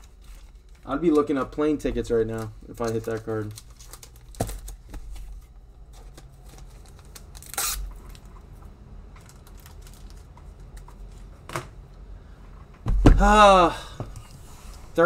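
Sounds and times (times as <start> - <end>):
cards rustling: 0.0 - 8.3, 9.1 - 11.4.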